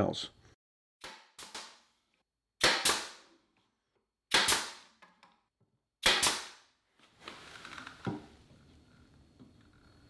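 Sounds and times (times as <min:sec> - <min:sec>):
nail gun firing: 0:01.0 - 0:01.8, 0:02.6 - 0:03.3, 0:04.3 - 0:04.9, 0:06.0 - 0:06.6.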